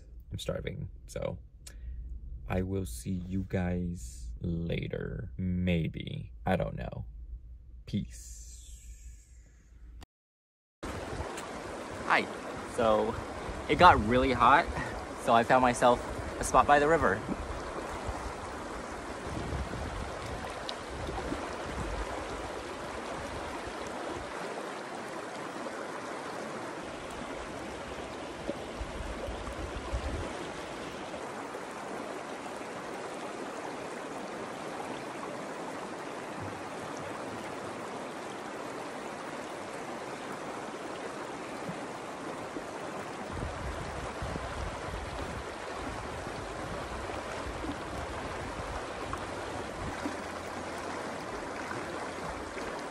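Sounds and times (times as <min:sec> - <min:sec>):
low rumble: 0:00.0 - 0:10.0
river flowing over rocks: 0:10.9 - 0:13.7, 0:20.0 - 0:52.9.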